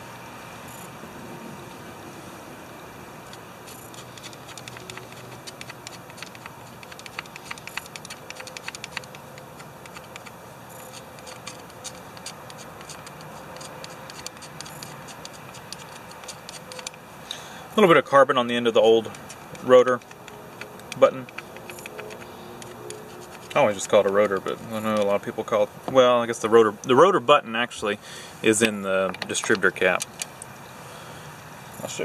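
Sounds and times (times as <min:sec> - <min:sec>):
steady low hum: 0:00.0 - 0:32.0
metal parts clicking and tapping: 0:03.3 - 0:17.0, 0:18.8 - 0:26.0, 0:28.5 - 0:30.5.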